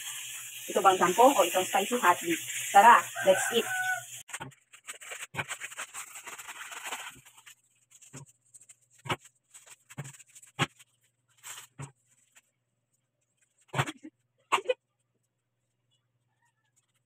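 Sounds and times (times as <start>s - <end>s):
plastic sachet crinkling: 0.0s - 12.5s
seasoning taps and shakes: 0.0s - 12.5s.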